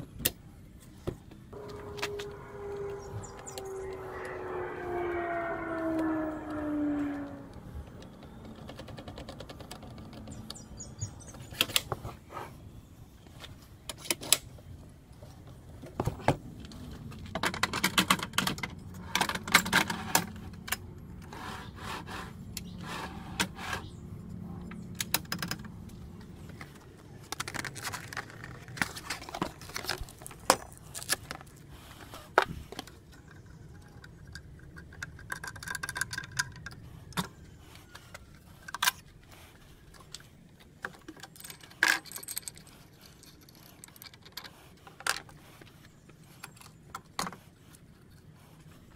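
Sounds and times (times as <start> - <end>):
plastic and metal parts clattering: 15.9 - 21.4, 24.7 - 31.6, 32.3 - 39.1, 40.0 - 45.4.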